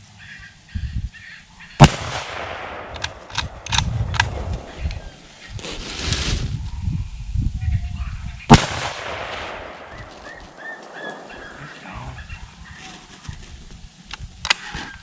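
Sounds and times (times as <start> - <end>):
wind rumble on microphone: 0.7 - 1.2, 2.9 - 10.5
gunshot with echo: 1.8 - 5.1, 8.5 - 11.9.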